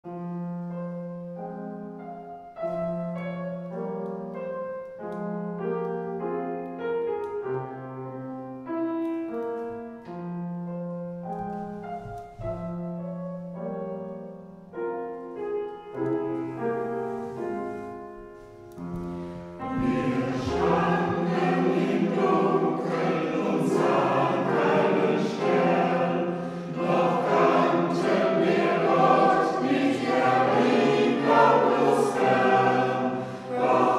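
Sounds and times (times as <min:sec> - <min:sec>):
church choir singing: 0:16.4 - 0:33.9
sustained accompaniment chords: 0:19.0 - 0:33.9.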